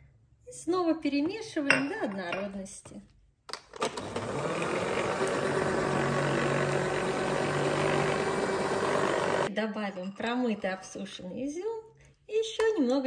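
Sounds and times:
stand mixer humming: 3.9s - 9.5s.

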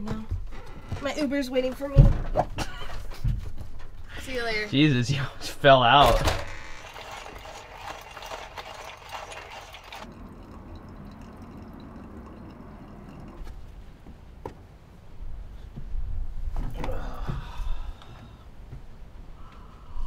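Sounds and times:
water pouring in a thin stream: 6.6s - 13.5s.

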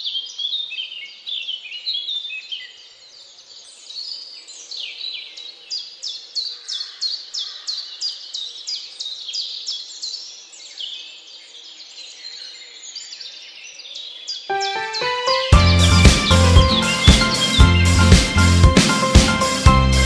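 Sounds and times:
birds chirping: 14.5s - 20.0s.

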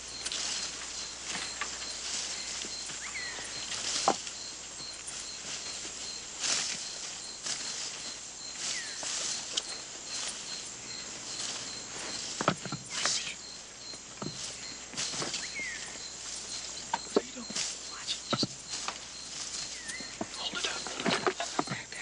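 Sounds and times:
footsteps rustling through leaves: 0.0s - 22.0s
high insect chirp: 0.0s - 22.0s
steady insect buzz: 0.0s - 22.0s
falling bird whistles: 8.7s - 9.1s, 14.3s - 18.8s, 19.6s - 20.8s.

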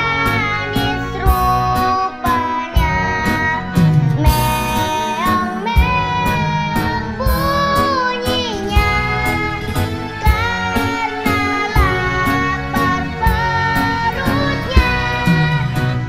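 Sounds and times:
backing music with drum beat: 0.0s - 7.9s, 13.2s - 16.0s
child singing: 0.0s - 16.0s.

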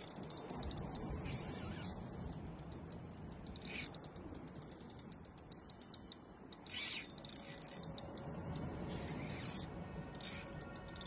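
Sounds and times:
fishing reel clicking: 0.0s - 1.1s, 1.7s - 11.0s.

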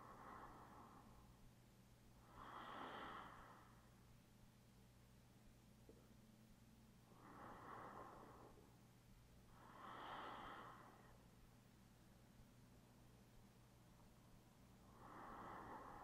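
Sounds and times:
person breathing slowly: 0.0s - 1.5s, 2.1s - 4.1s, 7.0s - 11.5s, 14.8s - 16.0s.

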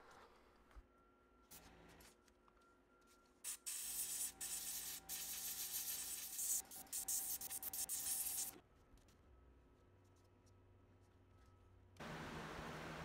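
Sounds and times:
airbrush spraying hiss: 3.5s - 8.5s.

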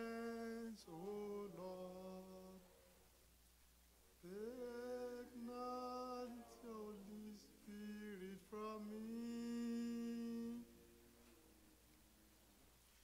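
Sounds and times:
man singing slow melody: 0.0s - 2.7s, 4.2s - 11.0s.

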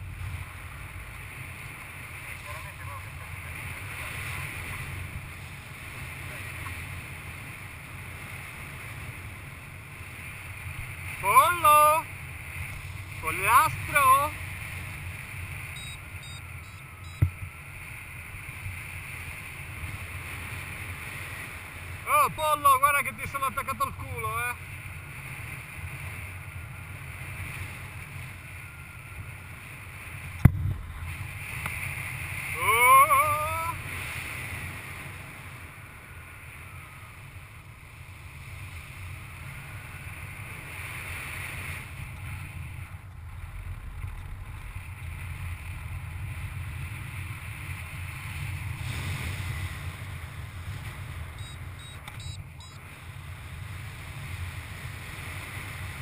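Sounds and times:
wind rushing over microphone: 0.0s - 56.0s
short rising-pitched tone: 15.8s - 17.2s.

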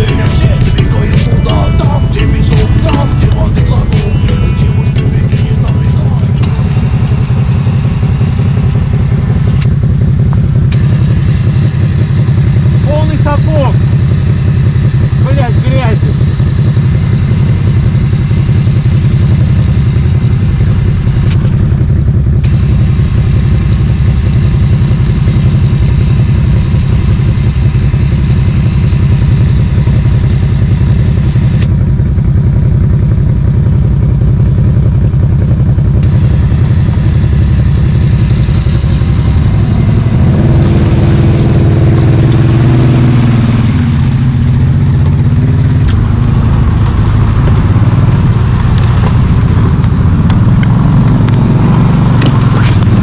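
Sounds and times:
atv engine running and revving: 0.0s - 53.0s.

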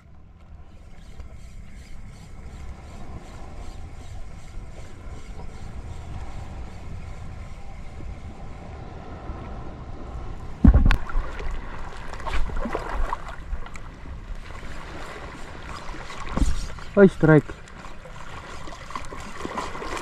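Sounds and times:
moving water: 0.0s - 20.0s
wind buffeting microphone: 1.5s - 20.0s
loud sudden thump: 10.6s - 11.0s
small splashes: 10.6s - 20.0s.

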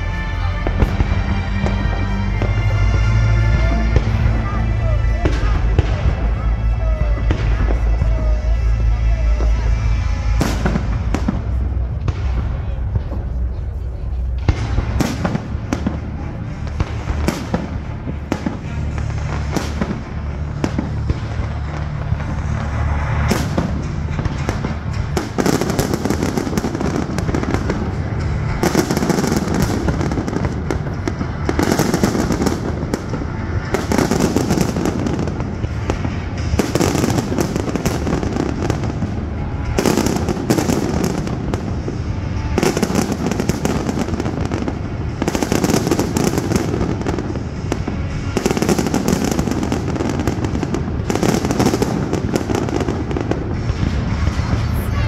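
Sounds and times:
fireworks crackling: 0.0s - 55.0s
firework bursts booms and pops: 14.4s - 54.8s.

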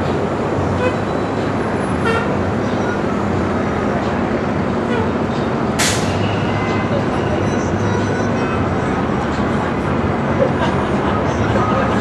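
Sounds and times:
city street traffic: 0.0s - 12.0s
vehicle horn toot: 2.0s - 2.4s.

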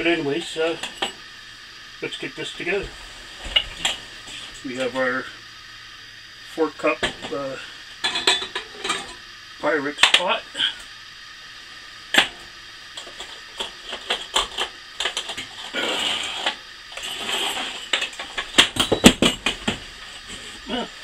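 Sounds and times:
glass and metal parts clinking: 8.0s - 9.2s.

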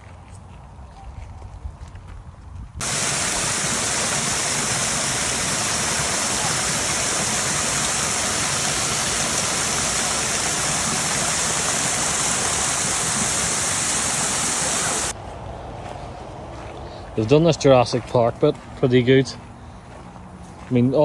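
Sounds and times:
waterfall rushing into pool: 2.8s - 15.2s.

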